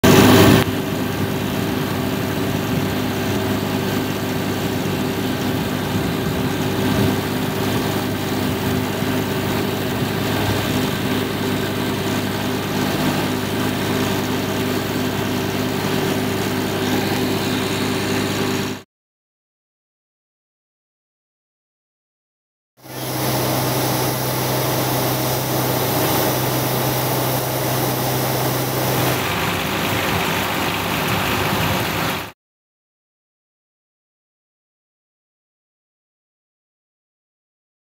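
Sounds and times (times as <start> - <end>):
engine idling: 22.8 - 31.6.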